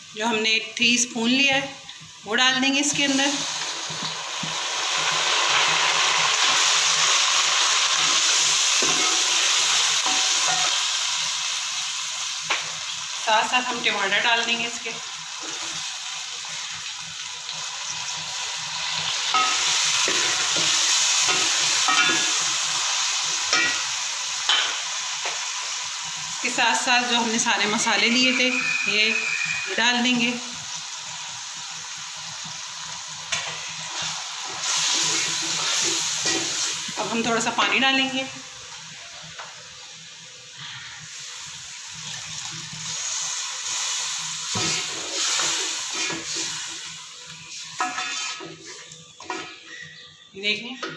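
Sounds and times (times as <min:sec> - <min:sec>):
food sizzling in hot oil: 0:00.0 - 0:50.3
spatula stirring in metal pot: 0:47.8 - 0:48.8.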